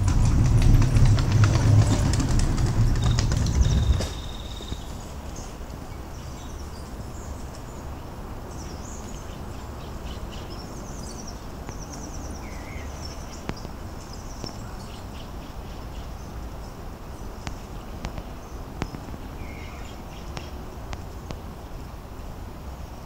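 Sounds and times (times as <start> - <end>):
low rumble: 0.0 - 5.2
small birds chirping and trilling: 0.0 - 22.0.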